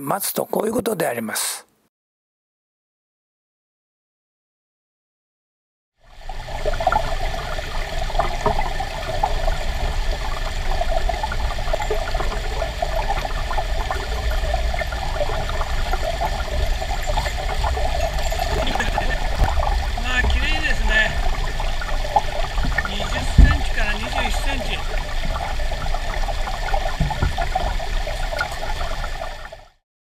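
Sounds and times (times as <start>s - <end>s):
stream water flowing: 6.0s - 29.8s.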